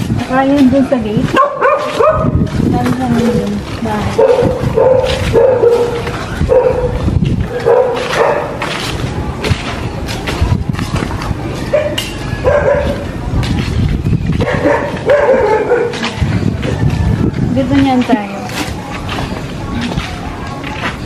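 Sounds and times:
dog barking: 0:01.3 - 0:02.4, 0:04.1 - 0:08.7, 0:11.7 - 0:13.1, 0:14.4 - 0:16.1.

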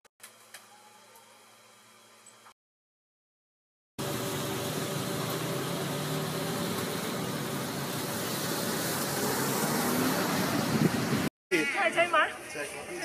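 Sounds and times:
road traffic noise: 0:04.0 - 0:11.3.

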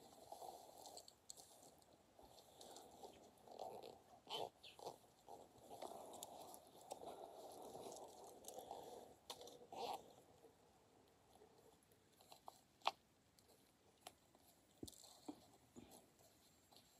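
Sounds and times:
soft rustle: 0:00.0 - 0:16.9
faint clicks and taps: 0:11.0 - 0:16.9.

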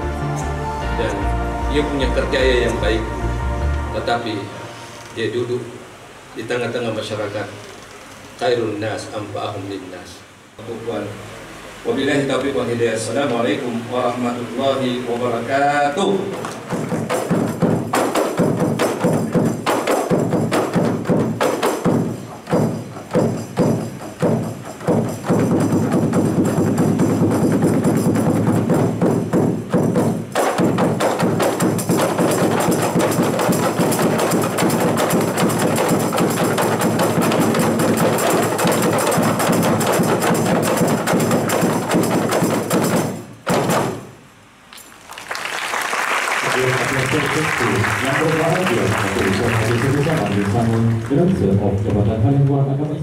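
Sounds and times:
hand frame drums ensemble: 0:15.9 - 0:44.7, 0:46.3 - 0:53.0.

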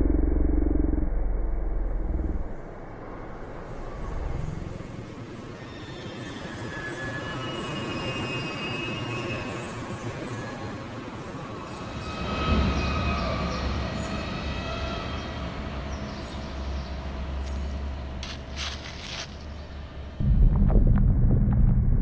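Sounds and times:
low rumble: 0:00.0 - 0:05.3, 0:17.9 - 0:22.0
thin sustained squealing tones: 0:05.6 - 0:09.6.

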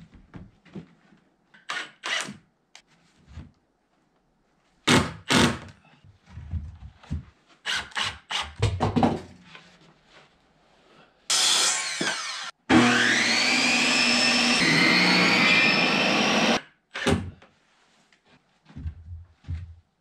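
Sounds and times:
circular saw cutting wood: 0:11.3 - 0:16.6.

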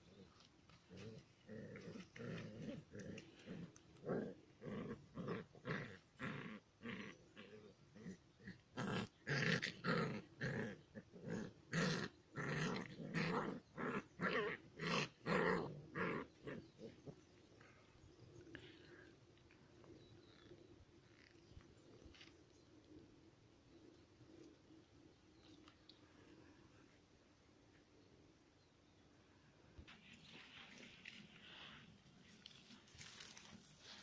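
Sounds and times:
puppies growling: 0:00.8 - 0:22.3.

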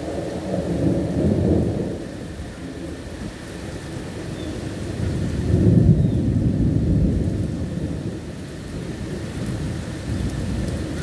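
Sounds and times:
steady rainfall: 0:00.0 - 0:11.0
thunder rumbling: 0:05.0 - 0:11.0.

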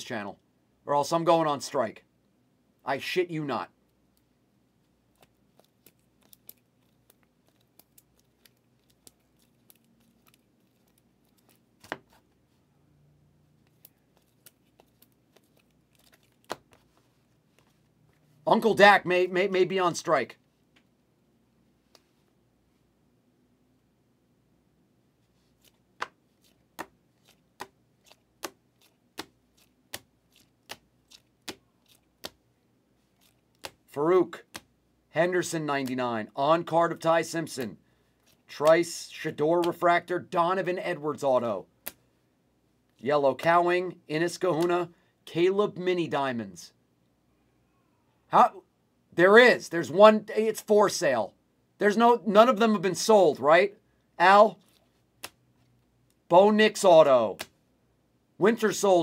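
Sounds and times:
trading cards flipped by hand: 0:05.2 - 0:12.4, 0:13.6 - 0:17.9, 0:25.4 - 0:32.4, 0:33.2 - 0:33.9.

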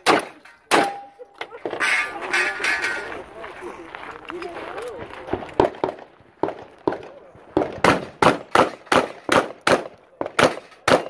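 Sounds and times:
rapid gunshots: 0:05.6 - 0:11.0.

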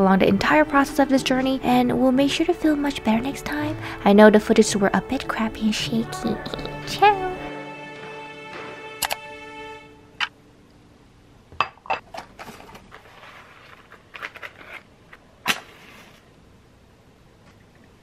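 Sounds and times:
matchbox rustling: 0:12.2 - 0:16.3.

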